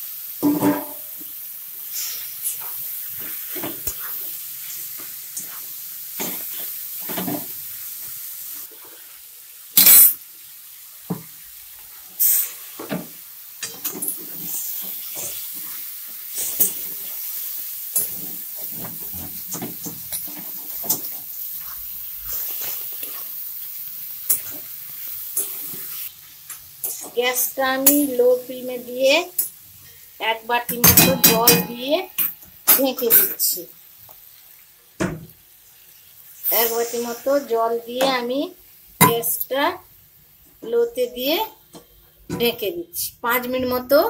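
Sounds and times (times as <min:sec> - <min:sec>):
frying sizzle: 0:00.0 - 0:44.0
spatula clattering against pan: 0:30.7 - 0:31.8.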